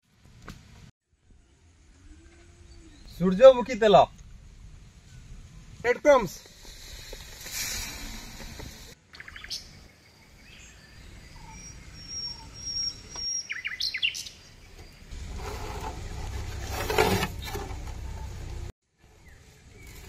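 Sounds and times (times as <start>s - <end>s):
small birds chirping: 8.9s - 15.1s.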